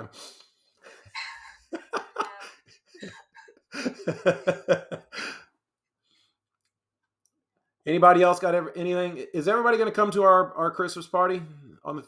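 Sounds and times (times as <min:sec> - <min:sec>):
person laughing: 0:00.9 - 0:05.4
person exhaling: 0:05.1 - 0:05.5.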